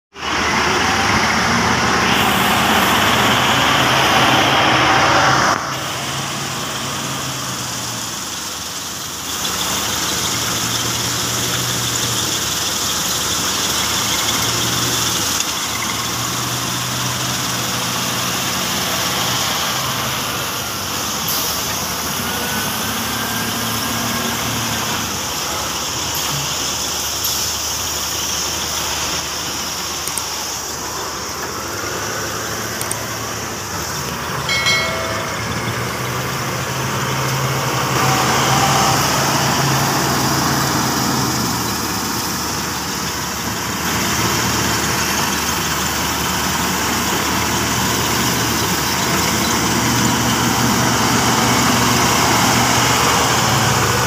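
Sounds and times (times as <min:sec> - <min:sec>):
loud rushing noise: 0:00.1 - 0:08.0
diesel engine working under load: 0:00.1 - 0:54.0.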